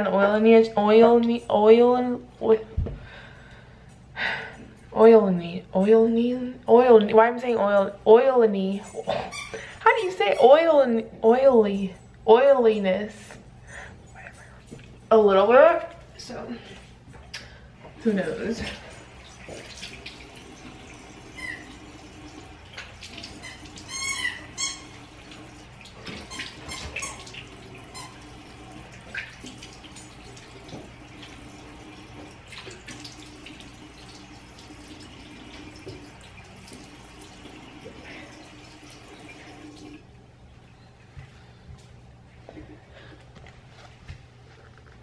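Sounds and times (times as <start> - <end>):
tap running into sink: 35.0 - 36.9.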